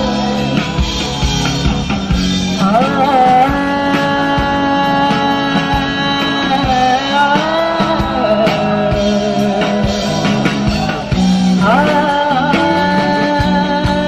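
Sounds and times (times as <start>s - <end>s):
drum kit: 0.0s - 14.0s
electric guitars: 0.0s - 14.0s
person singing: 0.0s - 14.0s.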